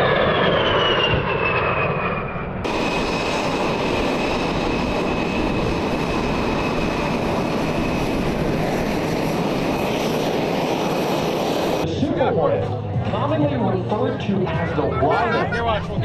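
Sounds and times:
jet engines running: 0.0 - 11.9.

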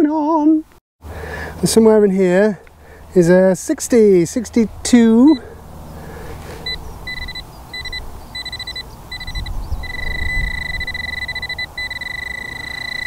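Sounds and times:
metal detector beeping: 5.2 - 5.5, 6.6 - 13.0.

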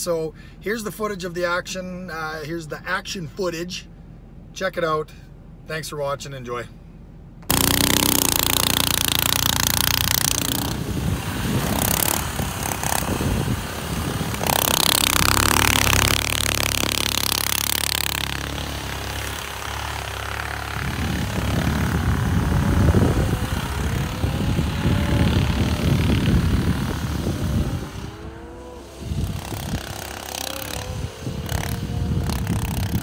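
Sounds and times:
snowmobile engine running: 7.5 - 33.0.

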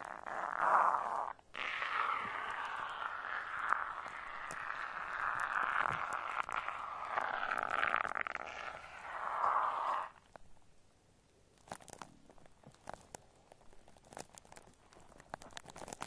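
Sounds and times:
shaving foam hissing rustle: 8.6 - 10.2.

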